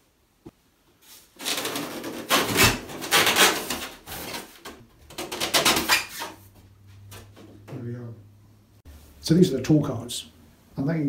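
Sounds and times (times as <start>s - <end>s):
polystyrene foam squeaking and scraping: 1.1s - 4.6s, 5.7s - 6.4s.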